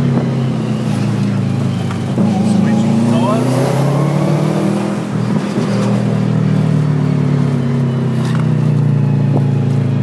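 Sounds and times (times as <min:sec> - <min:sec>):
car engine running under load: 0:00.0 - 0:10.0.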